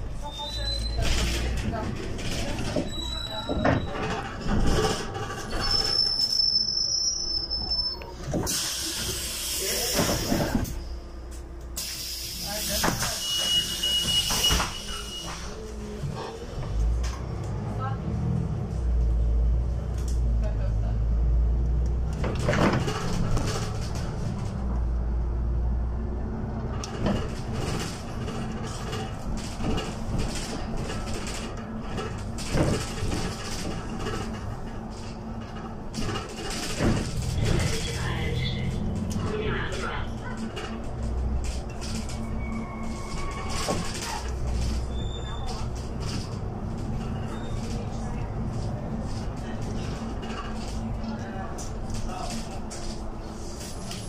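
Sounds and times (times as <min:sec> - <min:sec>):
brakes squealing: 0:00.0 - 0:11.2, 0:11.8 - 0:18.9, 0:26.5 - 0:54.0
bus cabin rumble: 0:00.0 - 0:54.0
knocks and clatter: 0:01.0 - 0:05.9, 0:22.0 - 0:24.6, 0:26.6 - 0:38.1.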